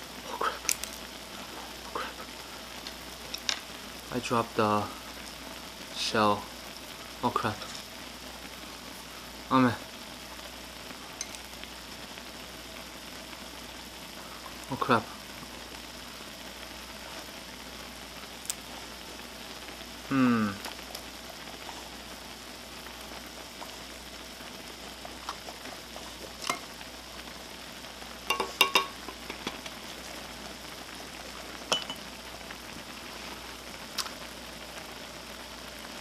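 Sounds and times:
pot bubbling and hissing: 0.0s - 36.0s
short falling vocal sound: 20.1s - 20.6s
spoon clinking in a pot: 28.3s - 29.6s, 31.7s - 32.0s
eggs tapped against a pot: 28.3s - 29.8s, 31.7s - 32.0s.

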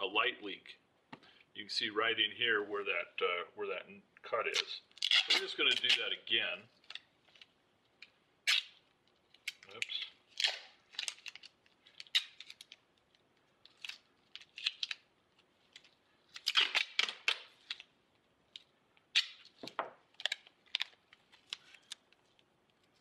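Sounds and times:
tape ripping off roll: 16.4s - 17.8s.

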